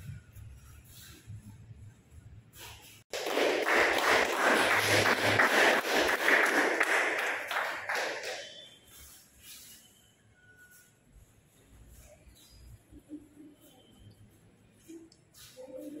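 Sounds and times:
people clapping: 3.1s - 8.7s.

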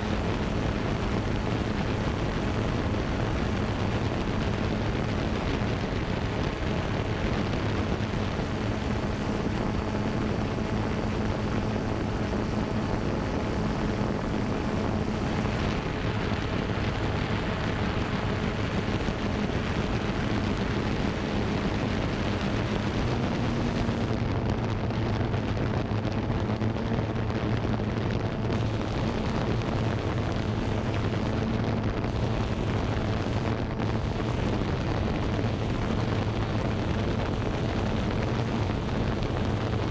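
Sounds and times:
drone motors humming: 0.0s - 39.9s
rushing noise: 11.2s - 39.9s.

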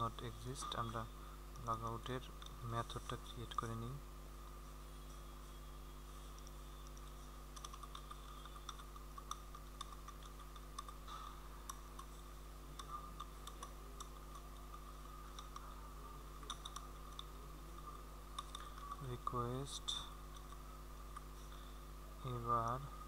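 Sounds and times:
low electrical hum: 0.0s - 23.0s
keyboard typing: 6.4s - 15.8s, 16.4s - 19.1s.

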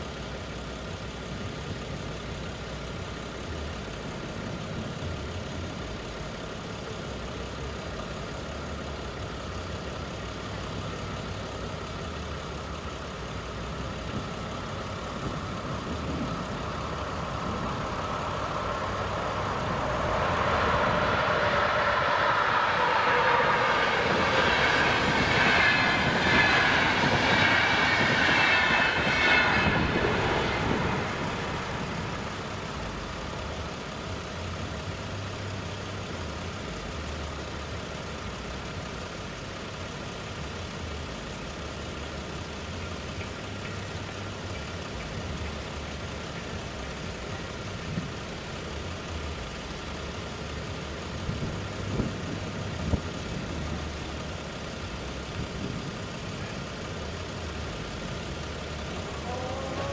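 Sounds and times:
car engine idling: 0.0s - 59.9s
passenger train passing: 13.4s - 34.5s, 58.4s - 59.9s.

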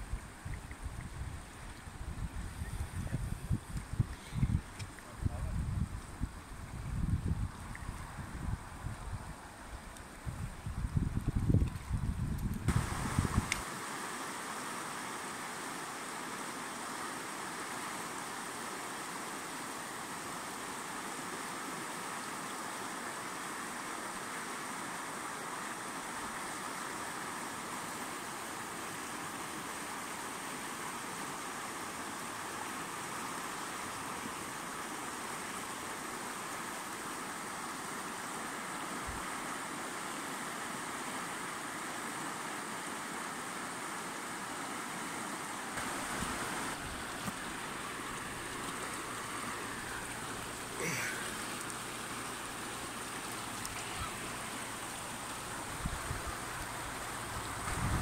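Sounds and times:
river rushing over stones: 12.7s - 58.0s.

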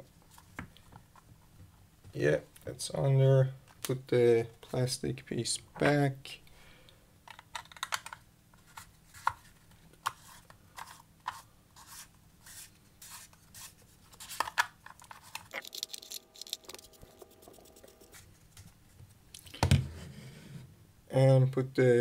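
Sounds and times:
plastic parts clicking and scraping: 7.3s - 11.4s, 14.2s - 17.9s.

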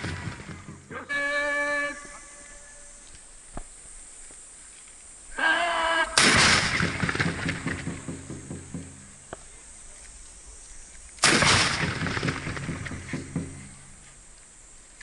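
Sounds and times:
guns firing volley: 0.0s - 1.5s, 6.1s - 9.2s, 11.2s - 13.9s
close gunshot: 6.2s - 8.5s, 11.2s - 13.6s.

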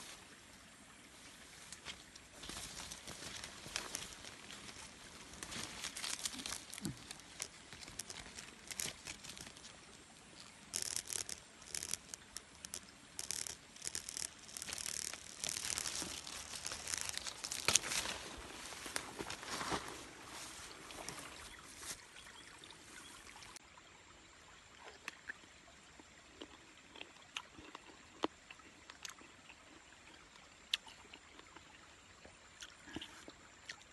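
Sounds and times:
leaves and twigs rustling: 1.1s - 22.2s.

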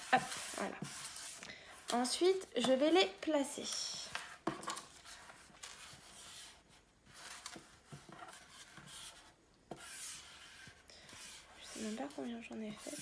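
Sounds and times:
paper cards rustling: 0.0s - 9.1s.

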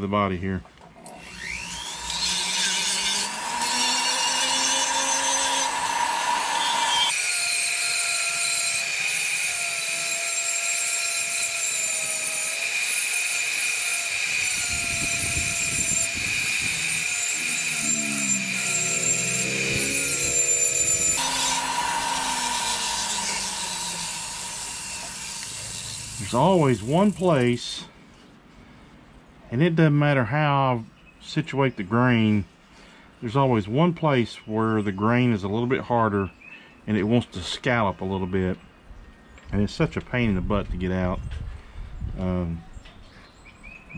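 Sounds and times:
rotary tool motor whine: 1.1s - 27.2s
sanding drum rasping wood: 7.2s - 27.2s.

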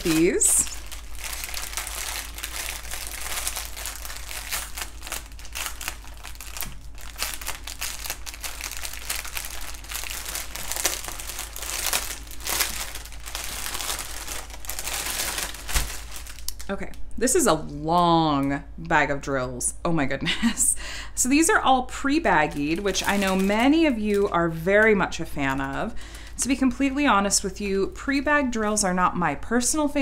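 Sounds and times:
plastic packaging crinkling: 0.0s - 17.1s, 21.4s - 27.5s.

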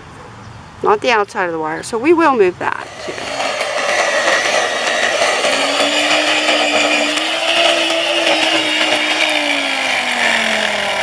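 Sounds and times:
electric lawn edger running: 2.7s - 11.0s.

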